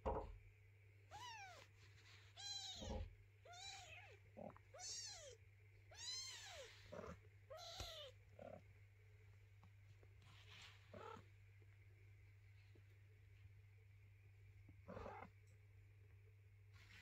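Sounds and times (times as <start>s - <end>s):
soft knock: 0.0s - 0.4s
kitten meowing: 1.1s - 1.6s, 2.4s - 8.6s.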